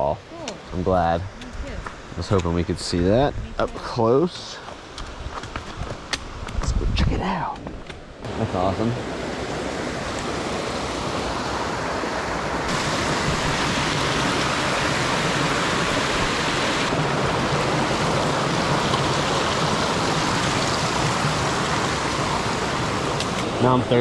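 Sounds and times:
waterfall rushing: 8.2s - 24.0s.

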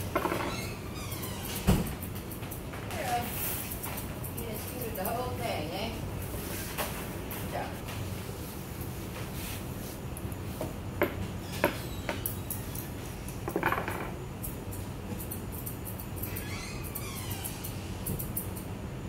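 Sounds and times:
steady low hum: 0.0s - 19.0s
scissors snipping fur: 1.8s - 5.6s, 14.4s - 18.7s.

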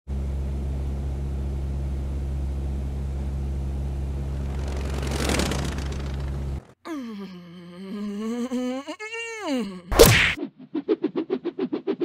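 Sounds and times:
aircraft engine drone: 0.1s - 6.8s
rising whoosh: 4.2s - 6.7s.

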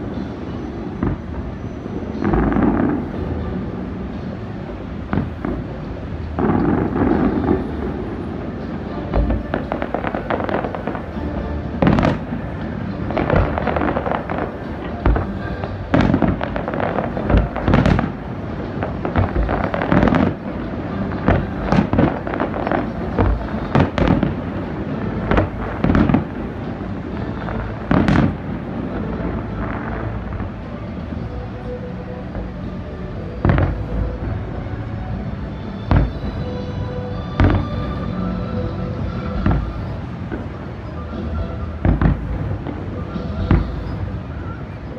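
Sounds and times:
crackle of small firework bursts: 11.8s - 30.7s.

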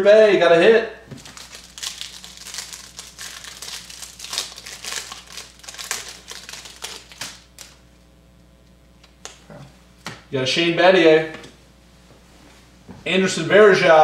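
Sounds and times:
plastic wrapping crinkling: 1.1s - 7.8s.

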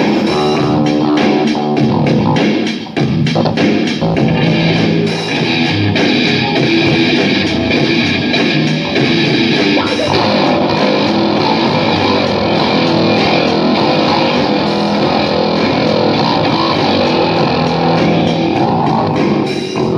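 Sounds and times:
loud guitar rock music: 0.0s - 19.9s.

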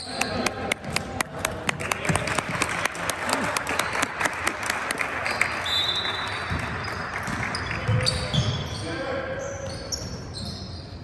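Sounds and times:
sharp hand claps: 0.1s - 7.6s
spectators applauding: 0.3s - 7.9s.

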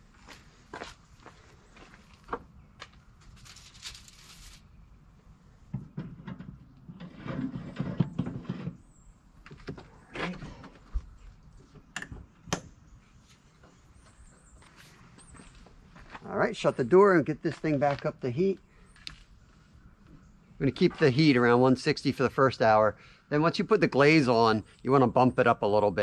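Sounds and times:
wire racks scraping and rattling: 6.0s - 8.8s.

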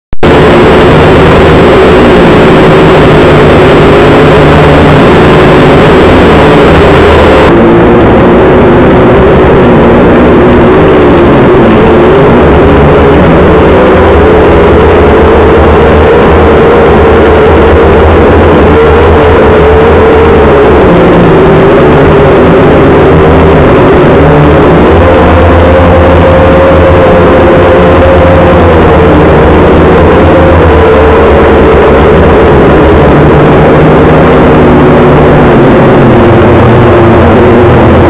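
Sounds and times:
drone propellers buzzing: 0.2s - 38.0s.

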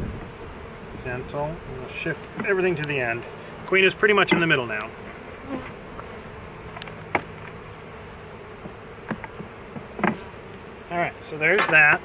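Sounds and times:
bees buzzing: 0.0s - 12.0s
wooden knocks of hive frames: 2.2s - 3.1s, 3.7s - 10.8s, 11.4s - 12.0s.

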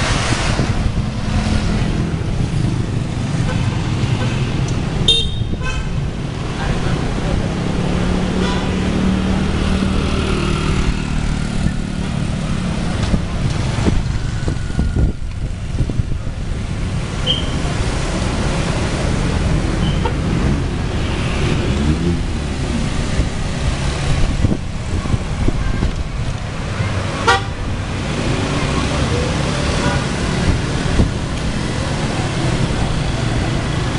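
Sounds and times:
wind rumble on microphone: 0.0s - 3.1s, 10.7s - 17.0s, 20.3s - 28.3s, 30.0s - 31.7s
cars and motorbikes passing: 0.0s - 33.9s
motorbike engine passing: 20.5s - 24.1s.

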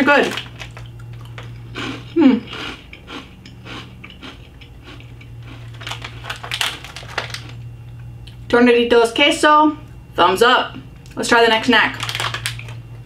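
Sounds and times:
chips crunching in mouth: 0.0s - 7.6s, 11.9s - 12.8s.

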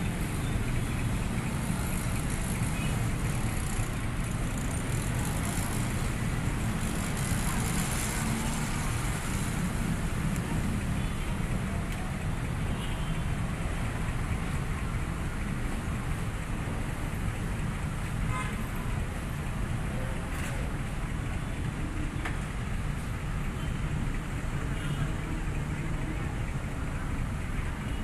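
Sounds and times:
cars passing: 0.0s - 27.8s
motor scooters passing: 1.2s - 11.1s.

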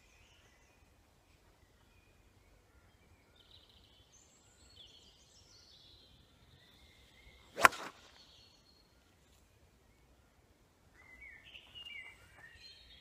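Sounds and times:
golf club striking ball: 7.6s - 8.0s
club swish: 7.6s - 8.1s.

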